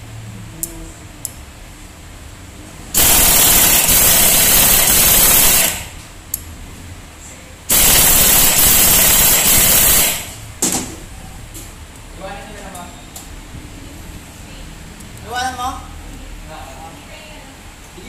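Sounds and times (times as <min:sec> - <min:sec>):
pneumatic impact wrench rattling: 0:03.0 - 0:06.0, 0:07.7 - 0:10.4.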